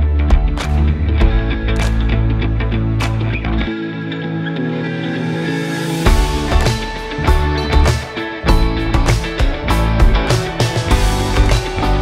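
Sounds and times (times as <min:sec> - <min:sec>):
drums: 0:00.0 - 0:02.2, 0:06.0 - 0:12.0
heavy bass: 0:00.0 - 0:03.7, 0:06.1 - 0:12.0
held chords: 0:00.0 - 0:12.0.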